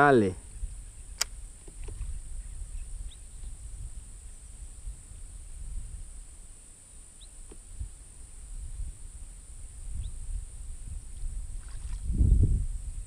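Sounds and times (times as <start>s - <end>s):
steady high hiss: 0.0s - 11.6s
faint rising bird chirps: 0.4s - 5.2s, 6.8s - 8.5s, 9.3s - 12.4s
low wind rumble on microphone: 0.4s - 13.0s.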